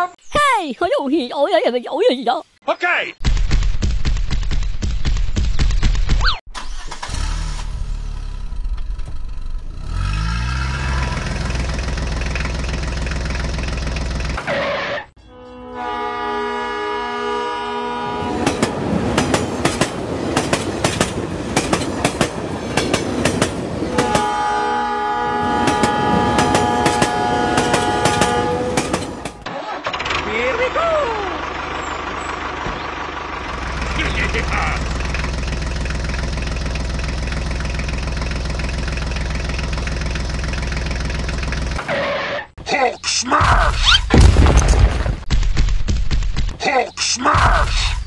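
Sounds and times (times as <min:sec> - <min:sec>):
tractor engine droning: 0:06.5 - 0:42.3
train horn: 0:15.2 - 0:18.7, 0:23.8 - 0:29.4
train wheels clacking over rails: 0:18.4 - 0:24.4, 0:25.6 - 0:29.4.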